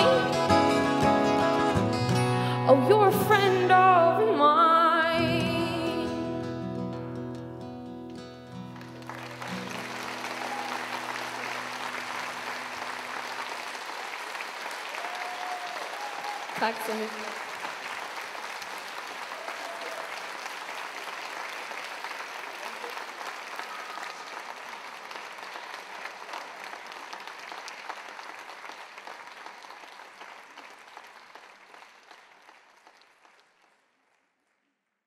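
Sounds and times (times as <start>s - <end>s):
audience applauding: 8.4s - 34.7s.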